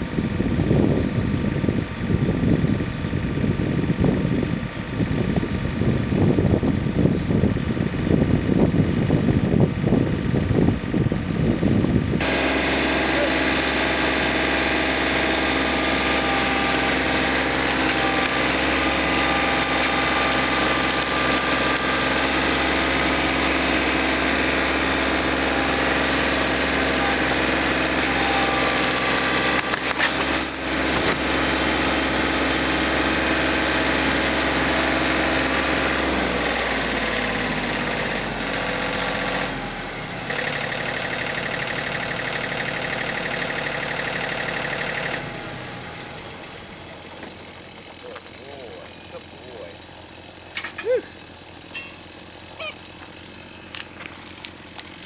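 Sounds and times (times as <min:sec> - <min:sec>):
tractor engine running: 0:00.0 - 0:55.0.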